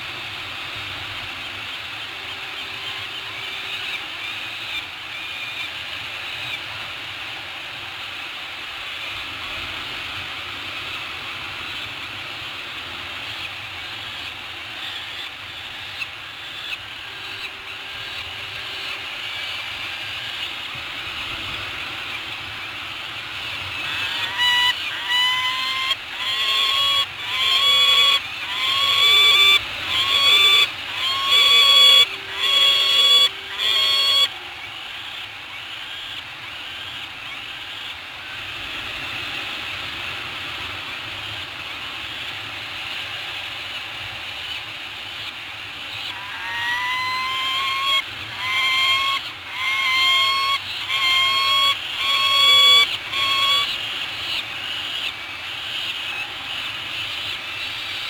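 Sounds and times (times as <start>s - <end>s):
distant seabird chatter: 0.0s - 6.8s, 10.6s - 58.0s
loud repeated bird calls: 11.6s - 38.4s, 42.8s - 58.0s.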